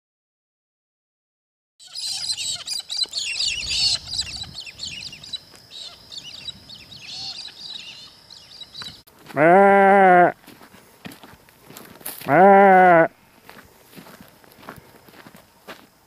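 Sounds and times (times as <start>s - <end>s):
birds chirping in chorus: 1.8s - 15.3s
sheep bleating: 9.2s - 10.4s, 12.2s - 13.1s.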